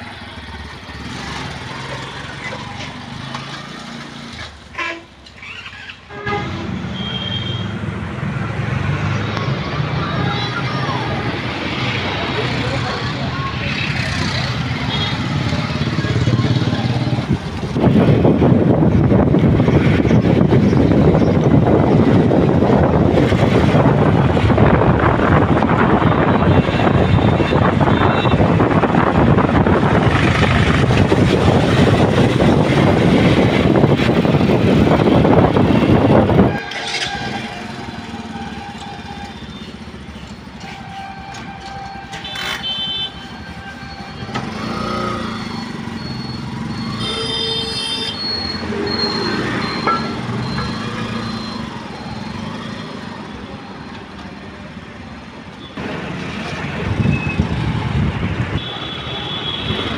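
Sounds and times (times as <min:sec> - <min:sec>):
road noise: 0:00.0 - 0:59.9
street traffic: 0:00.0 - 0:59.9
wind on microphone: 0:17.2 - 0:36.6
car horn toots: 0:36.3 - 0:37.6, 0:46.9 - 0:48.3.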